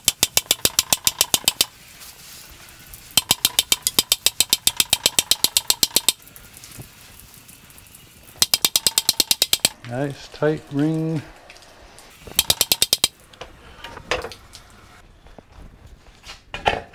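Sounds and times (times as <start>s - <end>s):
rapid hammer taps on steel: 8.4s - 9.8s, 12.4s - 13.1s.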